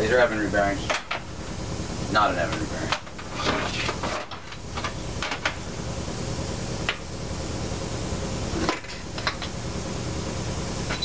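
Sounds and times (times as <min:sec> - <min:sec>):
low shop hum: 0:00.0 - 0:11.0.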